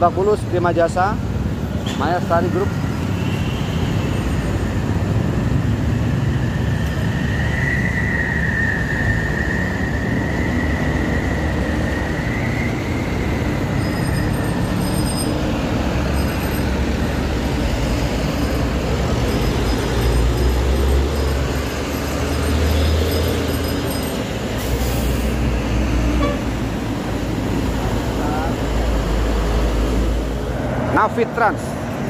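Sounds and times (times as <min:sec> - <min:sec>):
heavy traffic rumble: 0:00.0 - 0:32.0
high-pitched squeal: 0:05.8 - 0:26.6.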